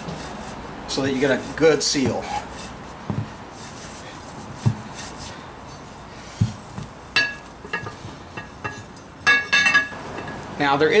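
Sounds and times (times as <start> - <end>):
cloth rubbing on metal ring: 0.0 - 6.0
soft thumps of handling: 3.0 - 3.4, 4.4 - 5.1, 6.3 - 10.4
metallic clinks: 7.2 - 10.4.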